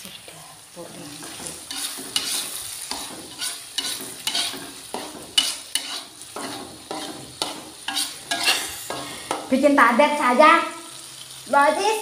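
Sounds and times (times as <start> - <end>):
frying sizzle: 0.0 - 12.0
metal spatula scraping wok: 1.1 - 9.6.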